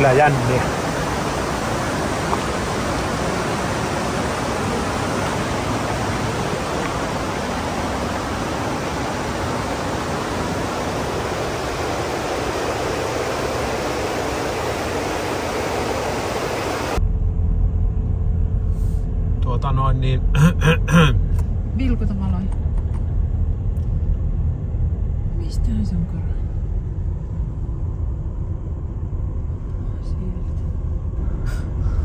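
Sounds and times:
car driving rumble: 0.0 - 16.0, 16.8 - 32.0
fast-flowing water rushing: 0.0 - 17.0.

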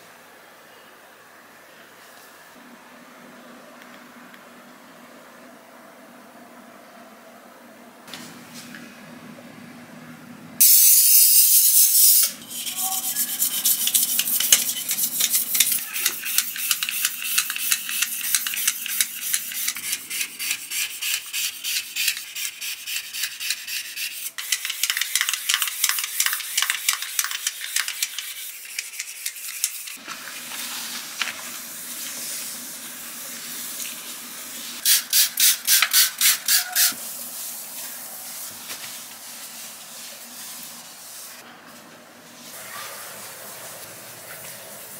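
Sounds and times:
aerosol can spraying: 10.6 - 12.3, 34.8 - 37.1
spray bottle squirts: 34.8 - 37.0.

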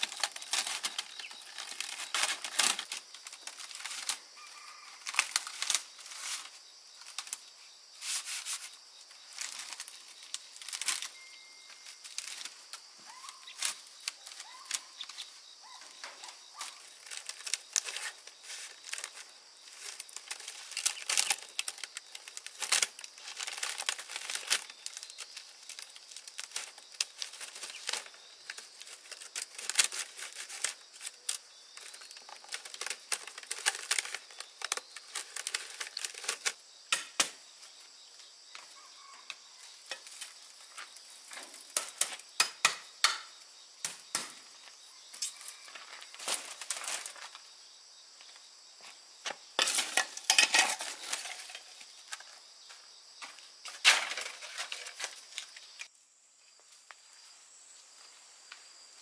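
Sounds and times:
scraping and rustling: 0.0 - 4.3, 5.0 - 7.4, 8.0 - 11.2, 11.8 - 36.6, 49.6 - 52.3, 53.6 - 55.9.

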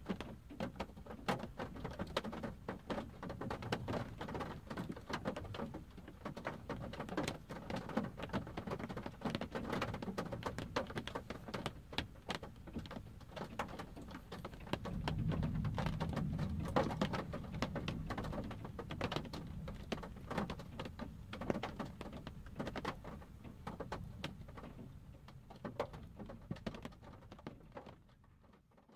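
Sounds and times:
rain pattering on car roof: 0.0 - 28.9
distant thunder rumble: 14.5 - 20.8.

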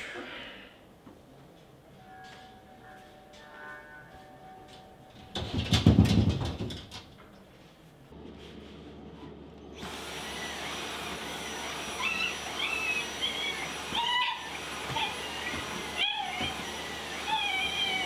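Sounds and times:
knocks and thumps: 5.2 - 7.2
vacuum cleaner whining: 8.2 - 18.0
dog whining: 11.7 - 18.0.

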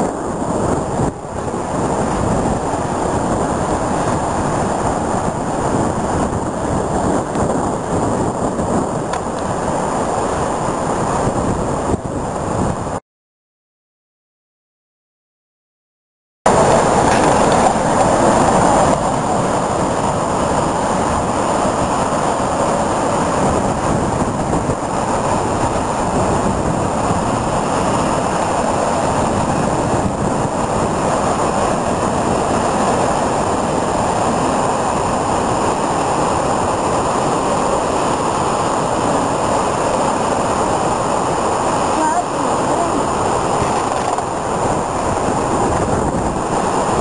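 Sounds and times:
wind: 0.0 - 13.0, 16.4 - 47.0
waves breaking on rocks: 16.5 - 47.0.

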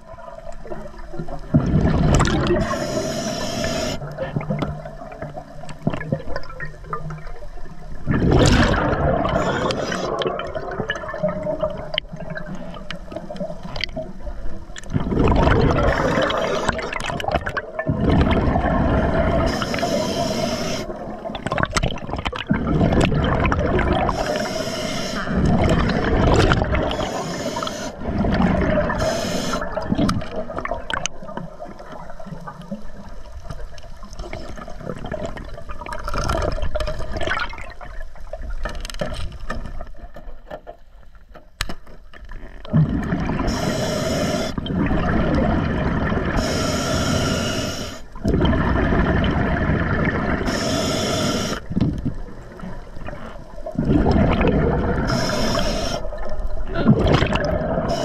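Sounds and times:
exhaled air bubbling underwater: 0.0 - 40.1, 42.2 - 58.0
hissing inhalations: 2.5 - 4.1, 9.4 - 10.2, 15.8 - 16.9, 19.4 - 21.0, 24.1 - 25.4, 26.8 - 28.0, 28.9 - 29.8, 43.4 - 44.6, 46.4 - 48.2, 50.4 - 51.7, 55.0 - 56.2, 57.7 - 58.0.

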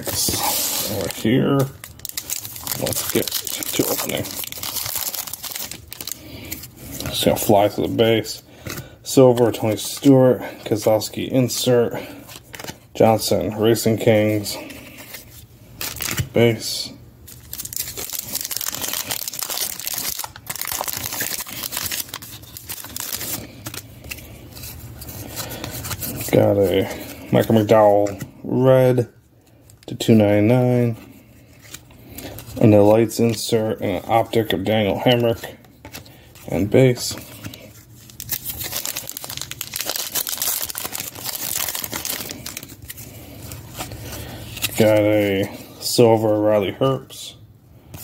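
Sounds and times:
foil wrapper crinkling: 0.0 - 7.8, 17.3 - 27.7, 37.4 - 45.0.

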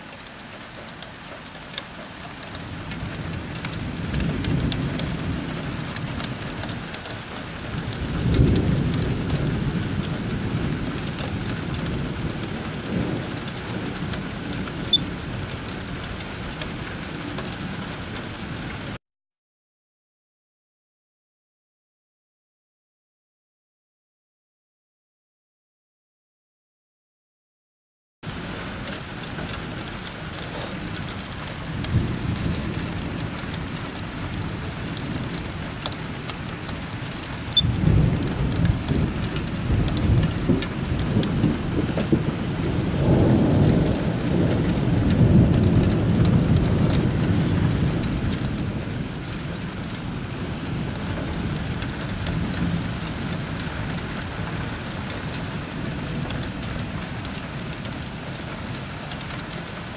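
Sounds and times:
steady rain: 0.0 - 19.0, 28.2 - 59.9
rolling thunder: 2.2 - 18.0, 28.3 - 58.7
thunder crack: 2.7 - 6.4, 7.6 - 15.4, 29.0 - 54.4.

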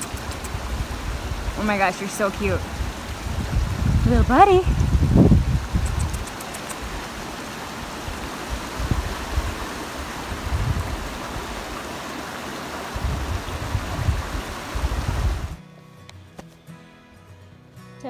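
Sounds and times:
wind on microphone: 0.0 - 7.2, 7.9 - 11.8, 12.9 - 15.6.

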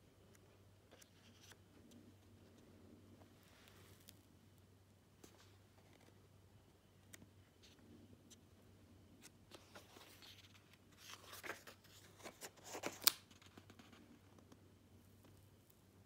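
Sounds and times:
paper pages rustling: 9.2 - 14.1
sharp snap of paper: 12.8 - 13.4.

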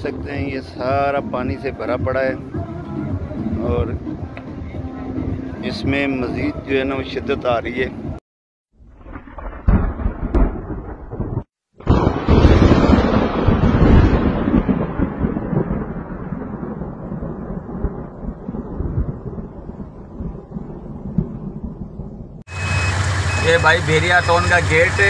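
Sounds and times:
loud rolling thunderclap: 8.8 - 22.4
thunder rumbling: 8.8 - 25.0.

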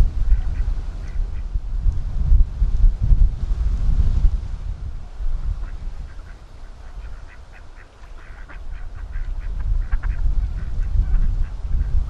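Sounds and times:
wind rumbling on microphone: 0.0 - 12.0
ducks quacking: 0.2 - 1.5, 5.6 - 12.0.

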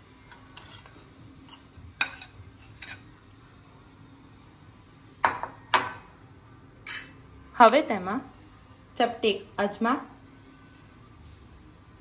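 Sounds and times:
spoon scraping and tapping bowls: 0.5 - 3.1.

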